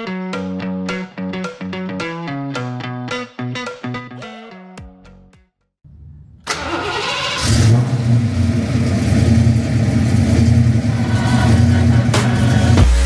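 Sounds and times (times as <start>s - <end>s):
car engine cranking and starting: 6.4s - 13.0s
car engine low rumble: 7.4s - 13.0s.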